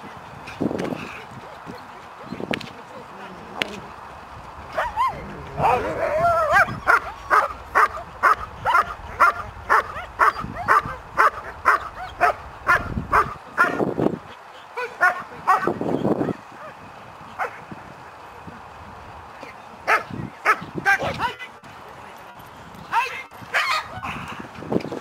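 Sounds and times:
dog barking: 0:04.7 - 0:13.8, 0:14.8 - 0:16.4, 0:19.9 - 0:20.6
man's voice: 0:05.1 - 0:06.7.

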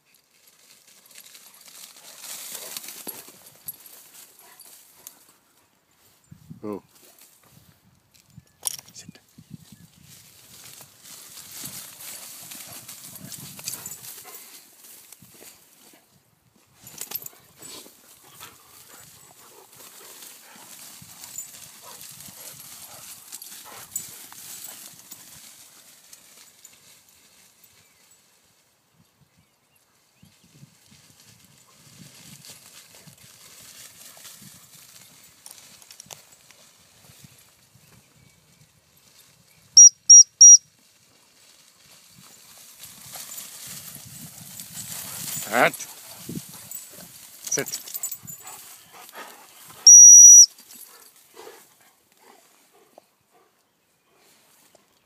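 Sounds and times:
rustling through grass: 0:00.0 - 0:07.8, 0:09.4 - 0:28.7, 0:30.3 - 0:39.8, 0:40.6 - 0:52.9, 0:54.1 - 0:55.0
dog paws running on turf: 0:00.3 - 0:05.4, 0:10.0 - 0:16.1, 0:31.0 - 0:37.5, 0:40.8 - 0:49.9.

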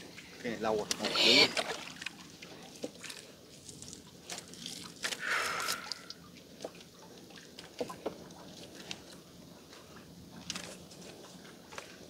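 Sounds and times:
water dripping and splashing: 0:00.2 - 0:09.2.

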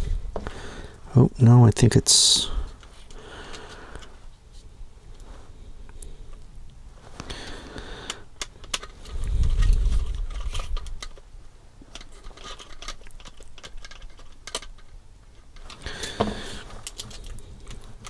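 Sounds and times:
plastic parts clicking and tapping: 0:08.1 - 0:11.3, 0:11.9 - 0:18.0.

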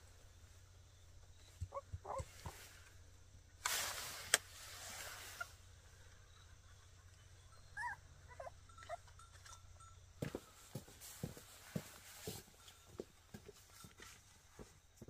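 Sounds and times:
faint animal calls: 0:01.3 - 0:02.8.

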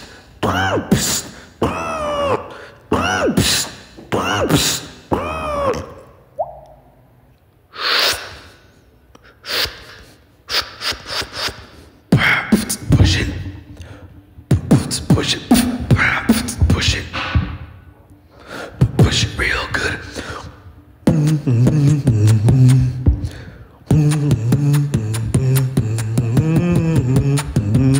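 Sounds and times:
beatboxing into a microphone: 0:00.0 - 0:06.9, 0:09.1 - 0:17.8, 0:18.4 - 0:27.9.

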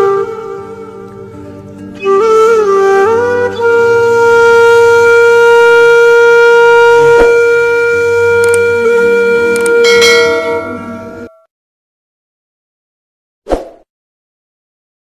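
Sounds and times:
song with long held note: 0:00.0 - 0:11.5.

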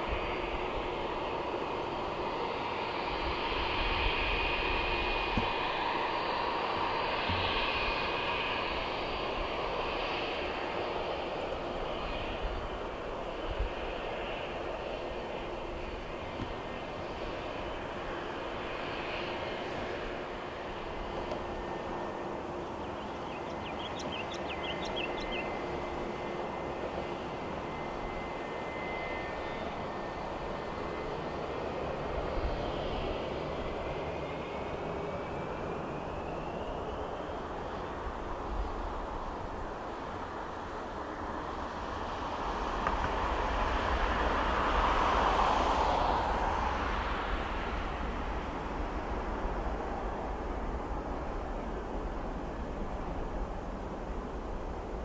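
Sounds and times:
jet engines whining: 0:00.0 - 0:55.0
bird chirping: 0:22.8 - 0:25.6.

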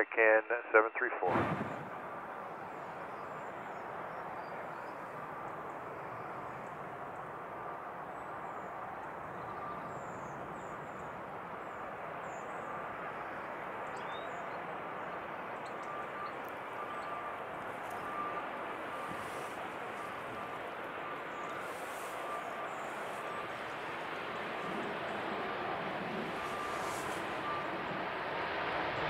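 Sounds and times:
airliner engine rushing: 0:00.0 - 0:29.0
faint bird chirps: 0:08.2 - 0:25.2.

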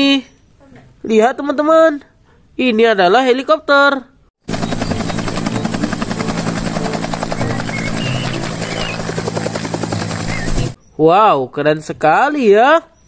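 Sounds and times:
helicopter engine hum: 0:04.4 - 0:10.8
helicopter rotor chopping: 0:04.4 - 0:10.8.

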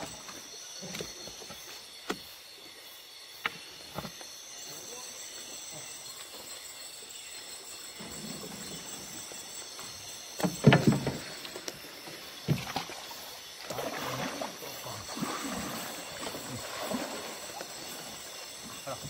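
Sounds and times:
people wading through water: 0:10.9 - 0:19.0.

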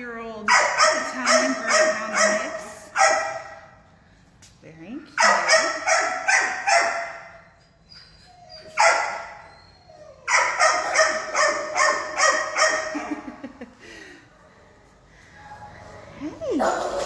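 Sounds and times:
dog barking with echo: 0:00.5 - 0:03.6, 0:05.2 - 0:07.2, 0:10.3 - 0:13.0.

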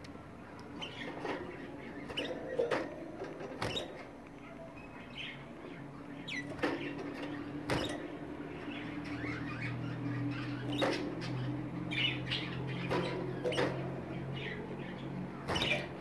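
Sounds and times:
canaries chirping: 0:00.0 - 0:16.0
knocks and rattles in wire cage: 0:00.8 - 0:04.2, 0:06.3 - 0:09.7, 0:10.5 - 0:14.6, 0:15.2 - 0:16.0.

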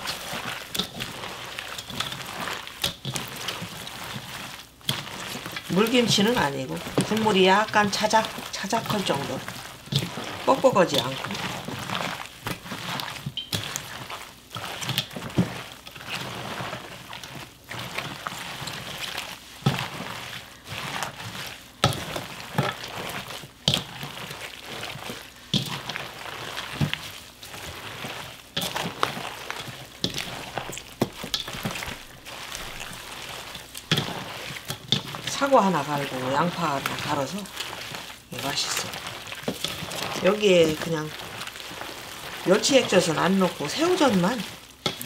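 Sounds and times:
wet squelching of leaves: 0:00.0 - 0:45.0.

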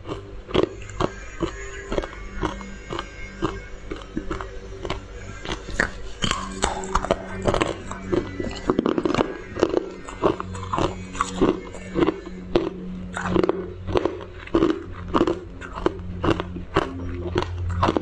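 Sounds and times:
low hum: 0:00.0 - 0:18.0
ice cracking and crunching: 0:00.1 - 0:18.0.

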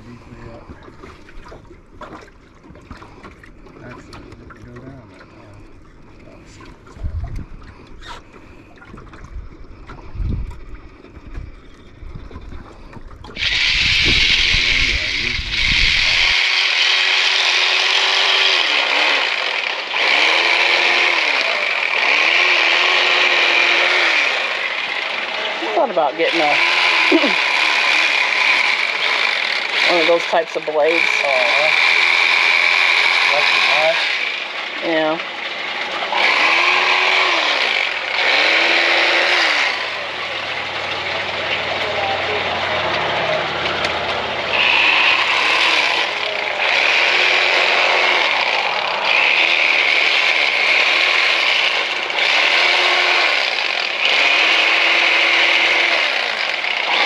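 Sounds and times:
electric fillet knife sawing: 0:13.4 - 0:57.0.

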